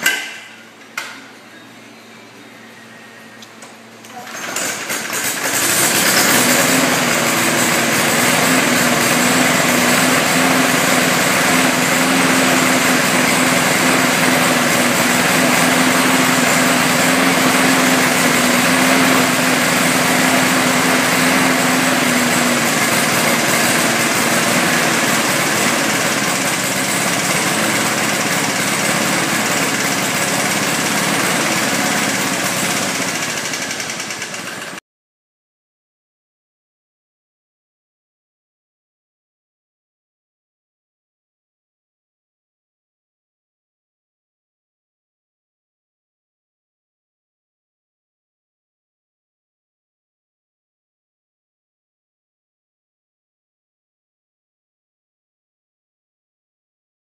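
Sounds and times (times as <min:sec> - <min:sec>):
lawnmower engine running: 0:02.6 - 0:34.8.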